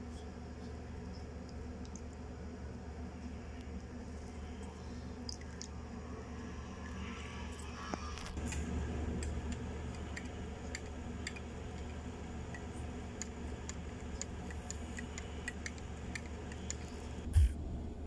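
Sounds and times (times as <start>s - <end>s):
steady low hum: 0.0s - 18.0s
whisk ticking against glass bowl: 9.9s - 17.1s.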